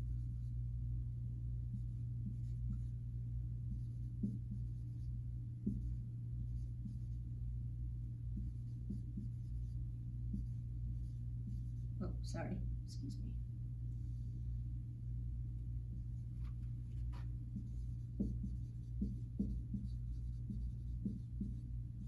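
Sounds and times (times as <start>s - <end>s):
steady low hum: 0.0s - 22.0s
marker writing on whiteboard: 1.7s - 2.9s, 3.7s - 7.2s, 8.3s - 11.9s, 16.3s - 21.7s.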